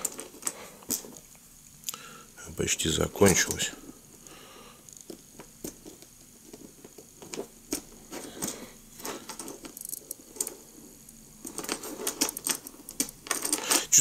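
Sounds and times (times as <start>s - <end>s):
plastic blocks clicking: 11.4s - 14.0s.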